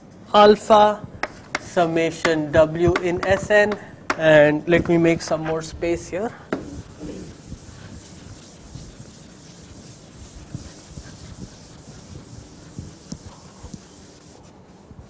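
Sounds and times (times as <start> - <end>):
eraser scrubbing chalkboard: 6.5 - 15.0.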